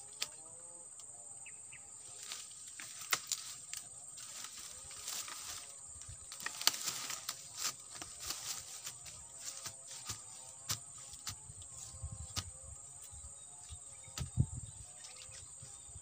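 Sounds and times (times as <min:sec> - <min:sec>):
high-pitched insect drone: 0:00.0 - 0:16.0
dry leaves rustling and snapping: 0:02.0 - 0:13.2.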